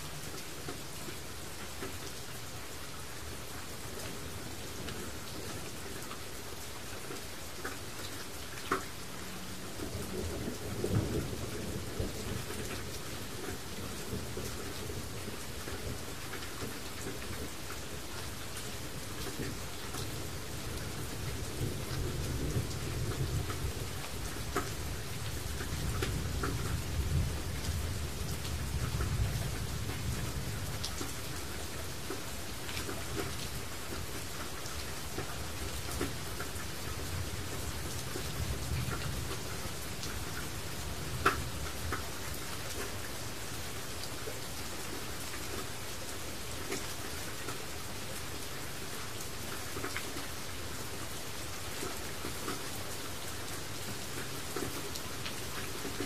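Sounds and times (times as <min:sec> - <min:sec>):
steady rain hiss: 0:00.0 - 0:56.0
raindrops ticking: 0:07.0 - 0:45.8, 0:53.4 - 0:56.0.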